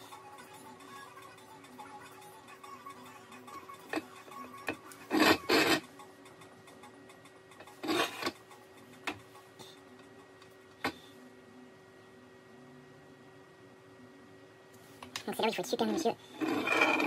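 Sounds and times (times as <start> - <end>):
rasping scrapes at a workbench: 5.1 - 5.8, 7.8 - 8.3, 16.4 - 17.0.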